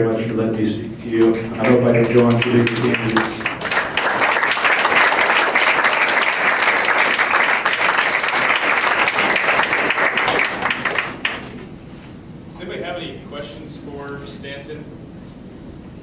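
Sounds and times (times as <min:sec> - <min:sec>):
audience applauding: 0:01.0 - 0:11.6.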